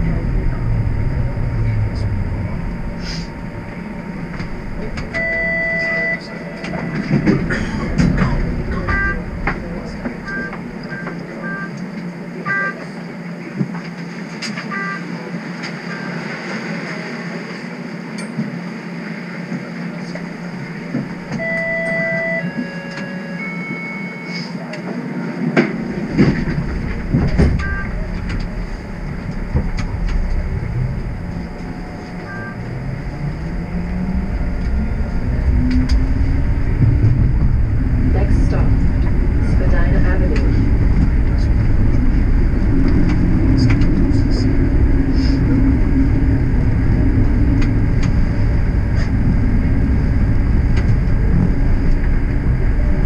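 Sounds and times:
low rumble: 0:00.0 - 0:12.4, 0:25.4 - 0:53.0
streetcar low hum: 0:00.0 - 0:53.0
three-tone electronic beeps: 0:04.4 - 0:06.9, 0:08.6 - 0:11.8, 0:12.4 - 0:12.8, 0:21.3 - 0:24.4, 0:27.4 - 0:28.3, 0:29.1 - 0:37.1.

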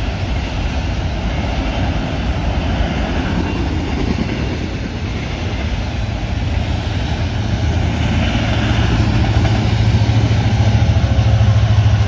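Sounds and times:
diesel locomotive engine drone: 0:00.0 - 0:12.0
rail cars rumbling past: 0:00.0 - 0:12.0.

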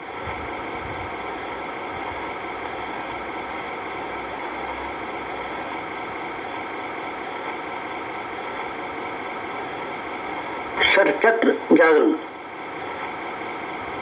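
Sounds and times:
machine hum and hiss: 0:00.0 - 0:14.0.

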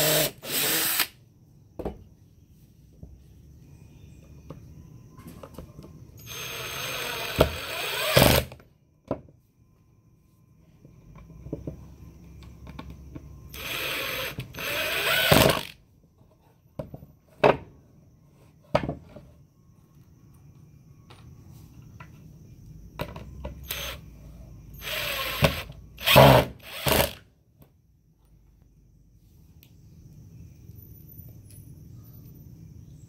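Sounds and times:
impact driver driving screws: 0:00.0 - 0:01.1, 0:24.8 - 0:27.2.

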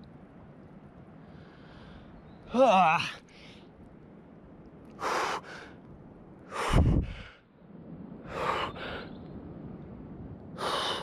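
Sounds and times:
breath rumble on microphone: 0:06.5 - 0:07.4
man breathing hard: 0:06.5 - 0:07.5, 0:10.6 - 0:11.0.

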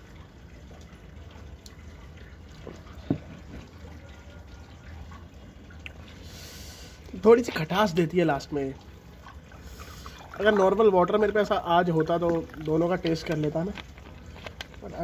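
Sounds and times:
low steady hum: 0:00.0 - 0:15.0
liquid and glass handling sounds: 0:02.4 - 0:04.2, 0:08.9 - 0:15.0.

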